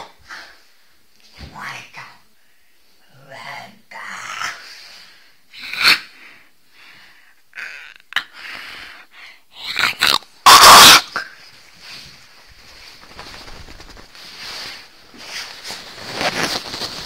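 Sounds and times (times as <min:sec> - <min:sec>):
dog snorting and sneezing: 0:10.0 - 0:11.2.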